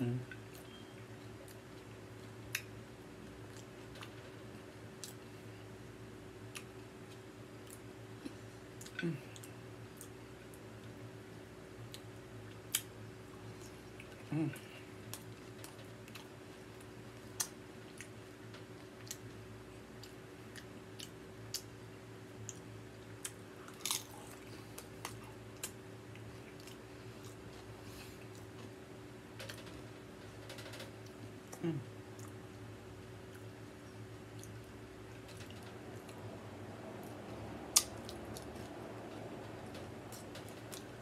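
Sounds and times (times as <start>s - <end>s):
steady low hum: 0.0s - 41.0s
chewing chips with crunches: 22.4s - 28.6s.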